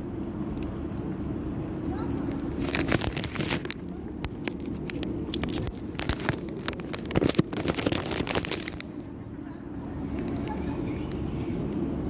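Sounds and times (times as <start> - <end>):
low background rumble: 0.0 - 12.0
plastic packet crinkling: 1.7 - 9.0.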